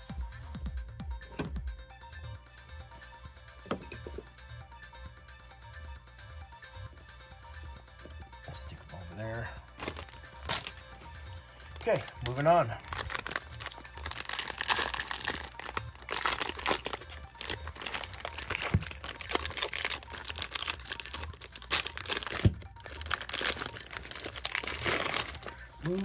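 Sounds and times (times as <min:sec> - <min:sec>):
foil wrapper crinkling and tearing: 0:09.7 - 0:10.9, 0:11.6 - 0:26.0.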